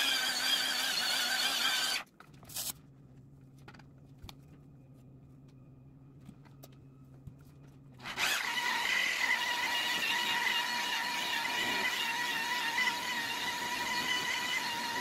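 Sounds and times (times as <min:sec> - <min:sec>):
faint low hum: 0:02.1 - 0:08.1
rotary polisher whining: 0:08.0 - 0:15.0.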